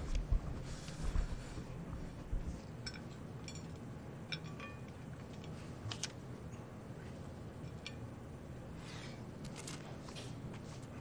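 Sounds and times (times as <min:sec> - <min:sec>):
cutlery clinking on plates: 0:02.9 - 0:05.0.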